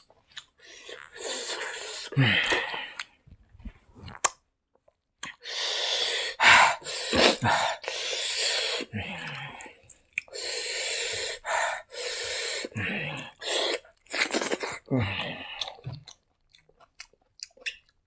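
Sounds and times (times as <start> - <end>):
man hissing breaths and gasps: 5.4 - 9.6, 10.3 - 13.8
wet chewing and lip smacks: 15.6 - 18.0.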